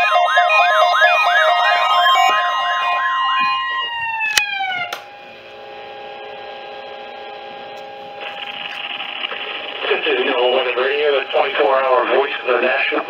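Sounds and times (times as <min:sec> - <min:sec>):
high alert beeping tones: 0:00.0 - 0:03.9
radio hiss: 0:08.1 - 0:13.0.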